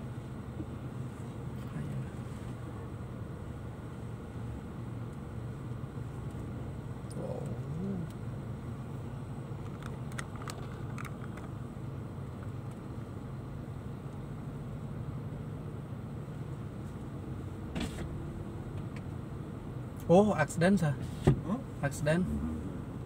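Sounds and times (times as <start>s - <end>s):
car engine and road hum: 0.0s - 23.0s.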